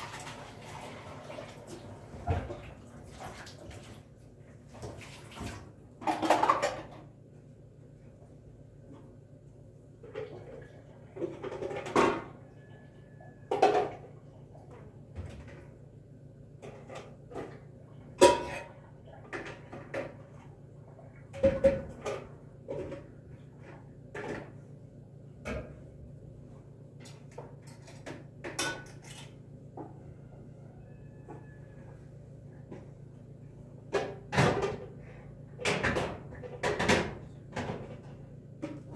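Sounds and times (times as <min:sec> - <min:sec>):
metal pots clanking: 0:18.2 - 0:18.8.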